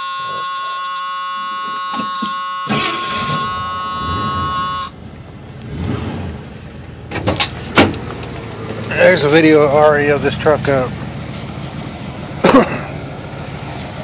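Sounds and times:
dashboard warning buzzer: 0.0s - 5.0s
engine cranking and starting: 2.7s - 4.8s.

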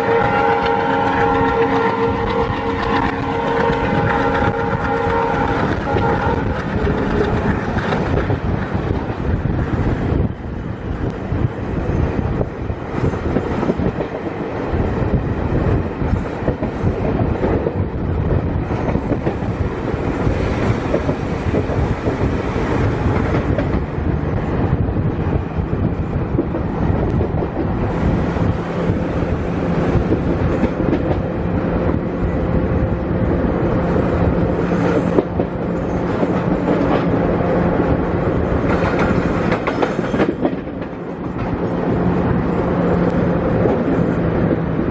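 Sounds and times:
train wheels clacking over track: 0.0s - 10.0s, 18.5s - 24.5s, 25.2s - 32.0s, 34.5s - 44.8s
rushing air: 0.0s - 44.9s.

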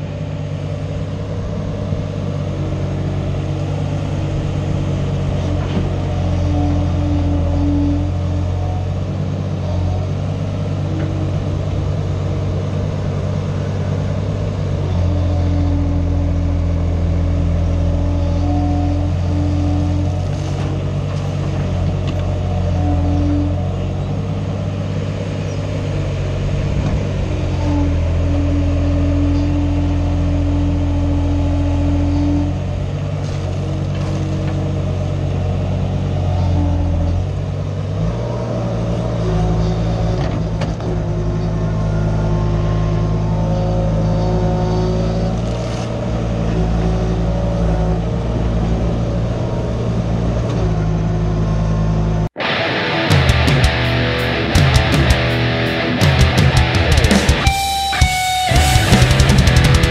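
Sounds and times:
excavator diesel engine: 0.0s - 59.9s
hydraulic higher tone: 52.4s - 59.9s.

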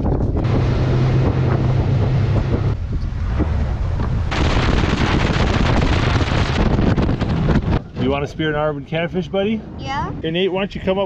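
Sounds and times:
wind buffeting microphone: 0.0s - 11.0s
outboard motor droning: 0.1s - 2.8s.

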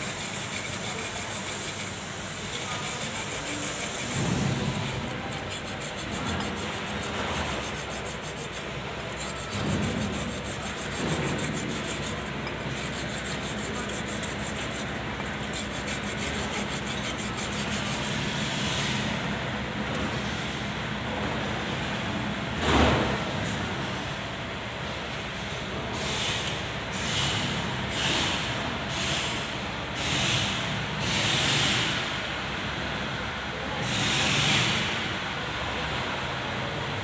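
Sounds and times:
hand rubbing metal brake drum: 0.0s - 18.4s.

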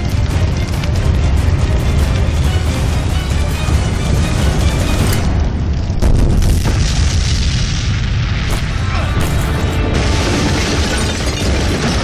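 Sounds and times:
background music: 0.0s - 6.6s, 8.4s - 12.0s
explosion low rumble: 3.7s - 8.8s.

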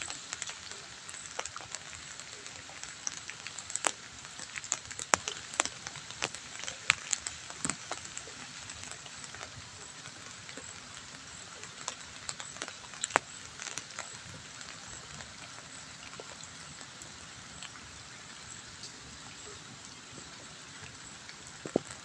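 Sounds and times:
drip ticks: 0.0s - 22.0s
drizzle pattering on wet road: 0.0s - 22.0s.

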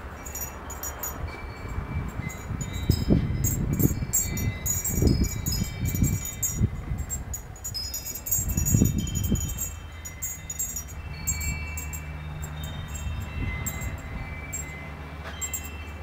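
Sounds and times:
wind chimes tinkling: 0.0s - 16.0s
wind rumbling on microphone: 0.0s - 16.0s.

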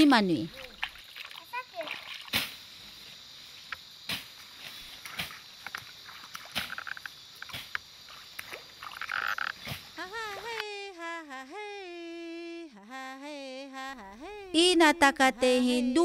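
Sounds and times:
high insect drone: 0.0s - 16.0s
frog calls: 5.6s - 10.6s
woman singing slow chant: 10.0s - 16.0s.

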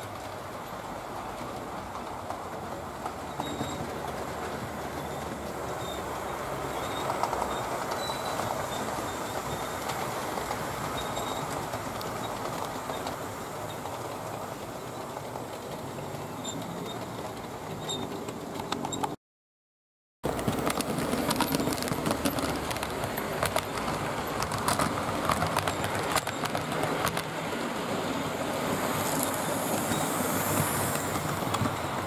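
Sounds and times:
model train rumbling on track: 0.0s - 19.2s, 20.2s - 32.0s
faint high squeaks: 3.2s - 4.0s, 6.7s - 9.8s, 17.8s - 19.2s.

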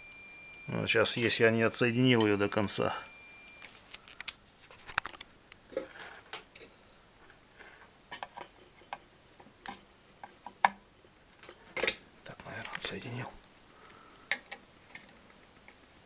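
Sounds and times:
high-pitched electronic beep: 0.0s - 3.7s.

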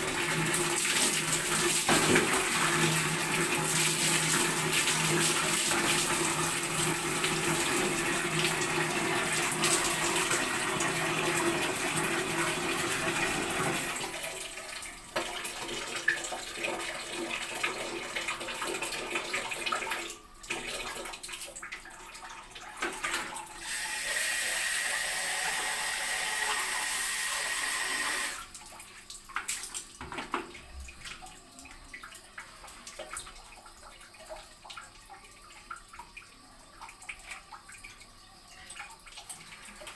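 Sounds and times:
water running: 0.0s - 39.9s
faint water drips: 14.1s - 23.6s, 28.4s - 39.9s
water splashing on floor: 28.4s - 36.0s.

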